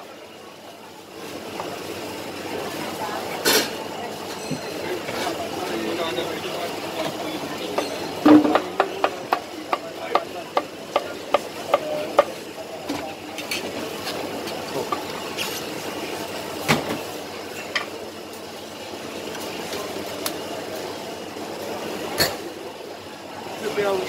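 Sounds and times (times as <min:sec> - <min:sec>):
crowd chatter and clatter: 0:00.0 - 0:24.0
plates and utensils clinking: 0:07.0 - 0:09.3.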